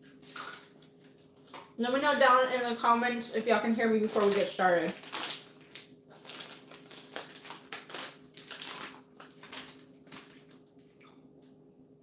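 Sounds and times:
plastic bag crinkling: 3.9s - 10.8s.

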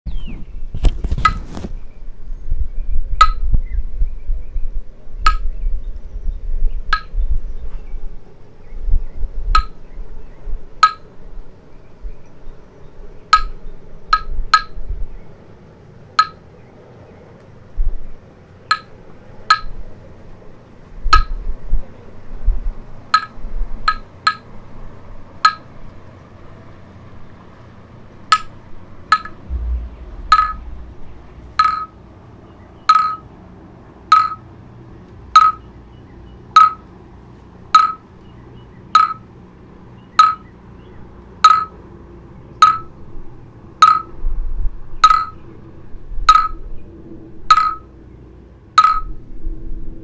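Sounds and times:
low rumble: 29.3s - 32.8s.

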